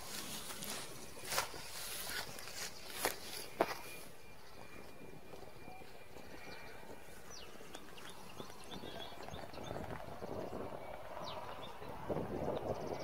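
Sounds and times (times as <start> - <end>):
bird chirps: 0.0 - 13.0.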